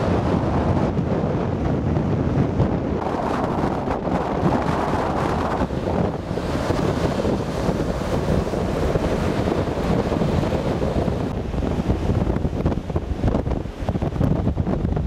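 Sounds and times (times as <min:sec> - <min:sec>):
heavy surf breaking: 0:00.0 - 0:15.0
wind buffeting microphone: 0:00.0 - 0:15.0.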